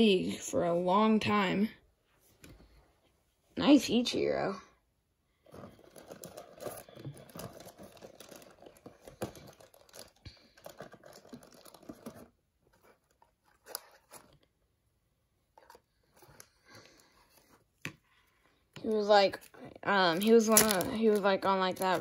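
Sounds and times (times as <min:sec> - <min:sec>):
cards rustling and clicking: 0:05.4 - 0:14.6, 0:15.4 - 0:22.0.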